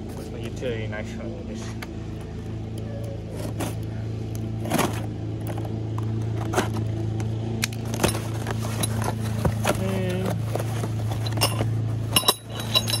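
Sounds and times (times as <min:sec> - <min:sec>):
small engine droning: 0:00.0 - 0:13.0
scrapes and clicks of handling: 0:01.6 - 0:13.0.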